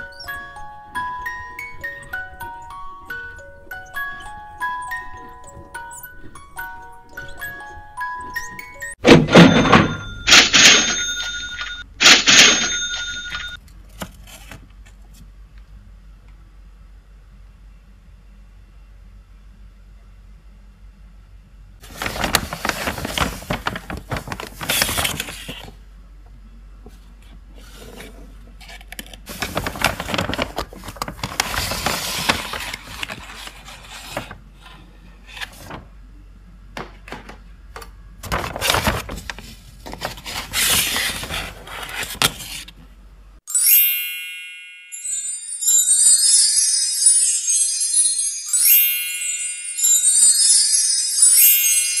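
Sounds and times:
chiming sleigh bell tune: 0.0 - 13.6, 43.5 - 52.0.

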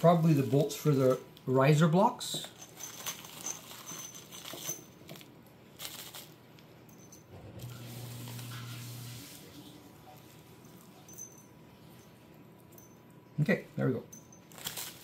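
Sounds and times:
plastic bag rustling: 0.0 - 1.2, 2.2 - 6.6, 14.4 - 15.0.

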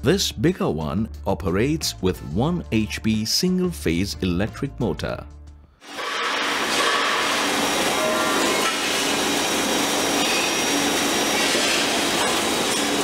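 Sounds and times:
machine running with motor hum: 6.3 - 13.0.

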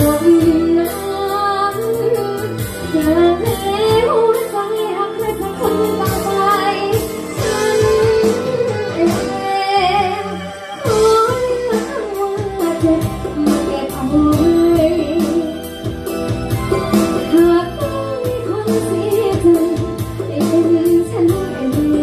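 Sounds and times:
woman singing: 0.0 - 16.0, 16.8 - 22.0
steady beat: 11.9 - 18.8.

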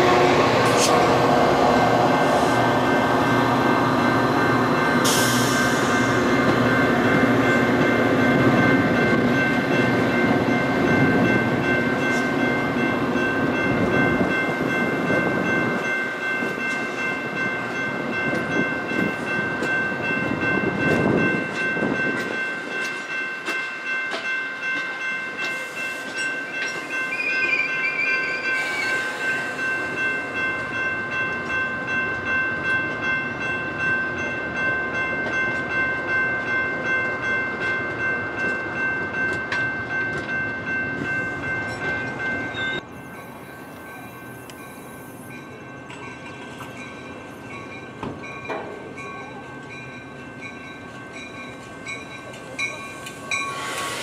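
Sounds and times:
crossing bell ringing: 0.0 - 54.0
train coaches rumbling past: 0.0 - 54.0
wheels clicking over rail joints: 48.0 - 49.2.

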